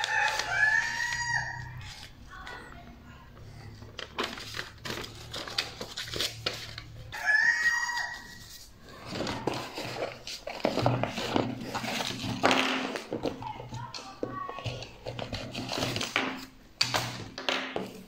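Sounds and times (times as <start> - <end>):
paper leaflet rustling: 0.0 - 2.7, 3.5 - 12.4.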